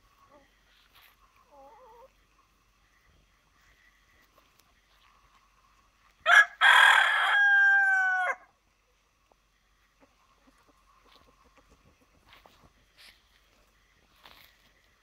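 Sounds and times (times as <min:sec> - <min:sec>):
hens clucking softly: 0:00.0 - 0:06.2, 0:08.8 - 0:15.0
rooster crowing: 0:06.2 - 0:08.5.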